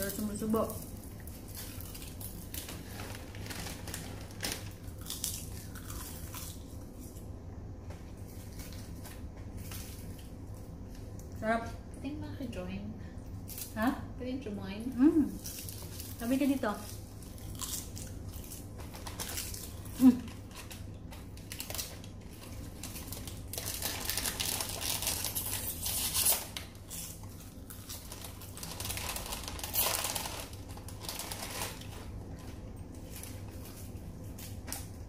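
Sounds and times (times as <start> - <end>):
snack packs crinkling: 0.0 - 7.3, 15.4 - 35.0
low steady hum: 0.0 - 35.0.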